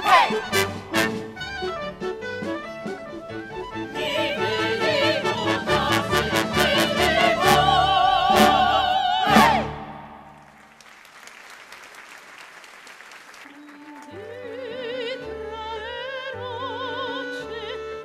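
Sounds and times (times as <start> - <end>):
orchestra playing fast dance music: 0.0 - 10.0
faint applause: 10.3 - 14.2.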